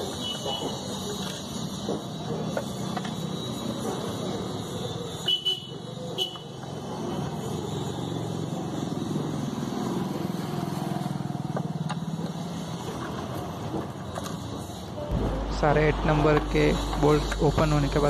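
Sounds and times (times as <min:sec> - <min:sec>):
low engine drone: 0:14.9 - 0:18.0.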